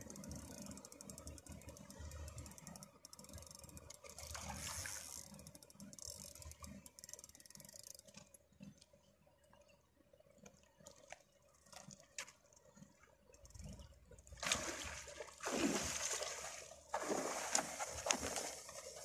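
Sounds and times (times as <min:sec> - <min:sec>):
faint water splashing: 0:00.0 - 0:08.7, 0:10.4 - 0:19.0
fishing reel clicking: 0:00.0 - 0:08.9.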